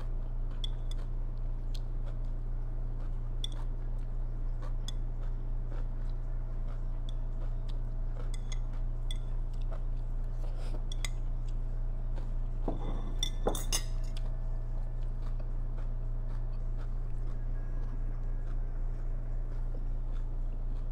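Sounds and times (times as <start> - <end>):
steady low hum: 0.0 - 20.9
metal chopsticks scraping ceramic plate: 12.7 - 14.2.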